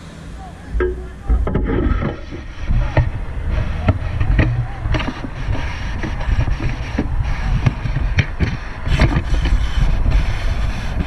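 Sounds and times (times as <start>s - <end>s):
wind buffeting microphone: 0.0s - 11.0s
clicks and knocks: 0.7s - 9.6s.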